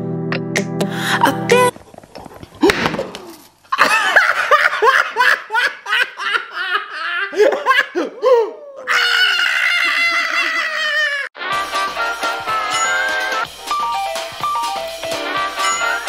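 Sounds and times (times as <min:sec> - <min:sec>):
man and woman laughing: 0:03.7 - 0:11.3
high held tone: 0:12.5 - 0:13.5.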